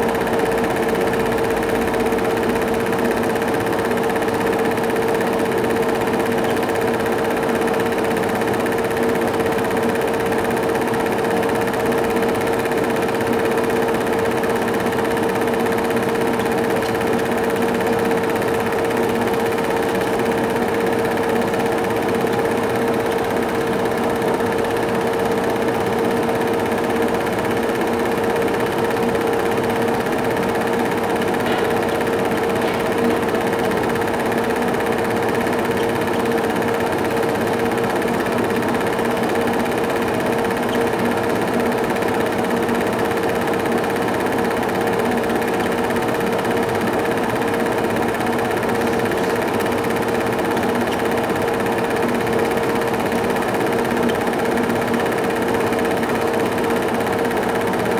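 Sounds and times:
movie projector whirring and clattering: 0.0 - 57.9.

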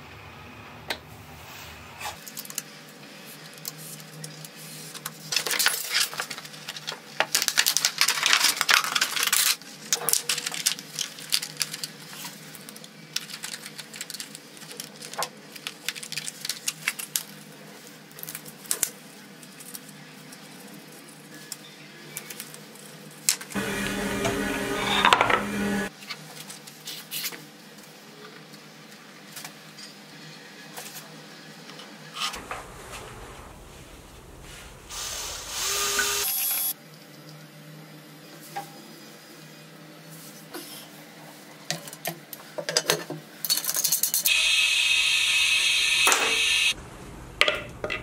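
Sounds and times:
plastic sheet crackling: 6.0 - 17.2.

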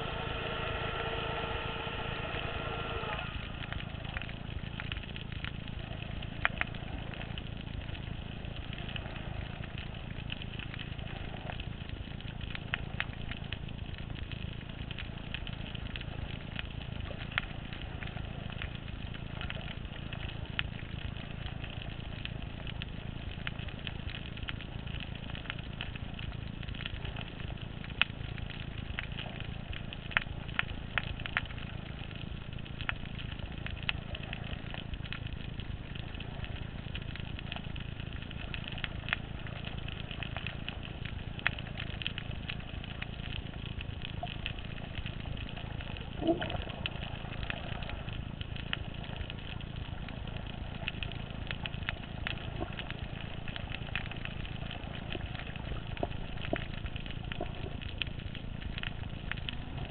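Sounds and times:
engine hum: 0.0 - 7.6
low underwater rumble: 0.0 - 59.9
sharp underwater clicks: 3.1 - 59.9.

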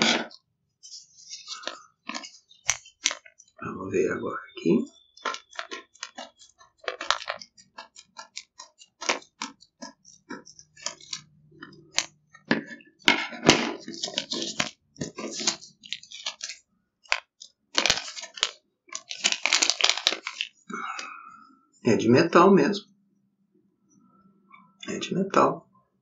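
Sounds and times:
plastic packaging crinkling: 0.0 - 3.5, 4.9 - 20.7.

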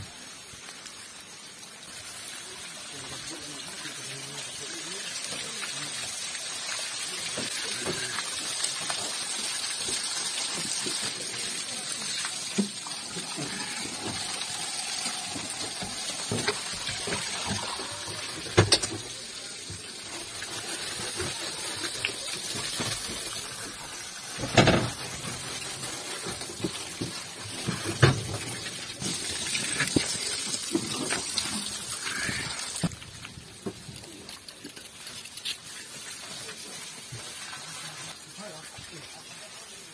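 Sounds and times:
water running from hose: 0.0 - 39.9.

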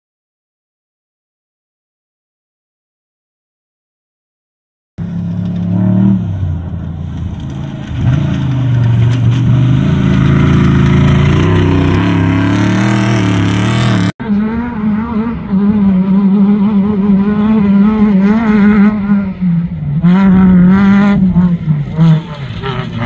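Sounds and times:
truck engine revving: 5.0 - 23.0
truck engines racing past: 5.0 - 23.0.

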